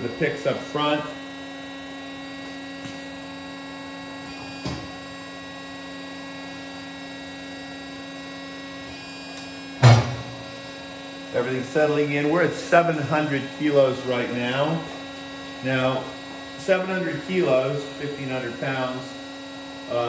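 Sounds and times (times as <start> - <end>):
hydraulic machine humming: 0.0 - 20.0.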